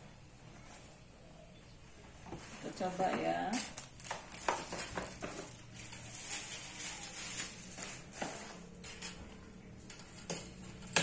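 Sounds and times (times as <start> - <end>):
plastic wrapping rustling: 2.3 - 11.0.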